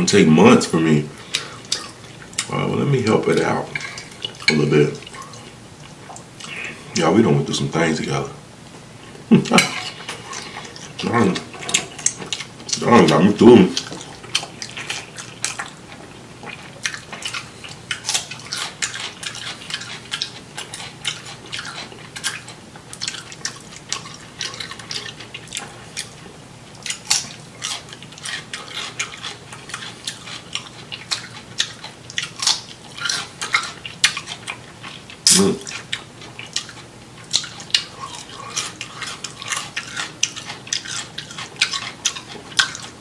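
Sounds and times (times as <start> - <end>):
chewing crisp cucumber: 9.5 - 43.0.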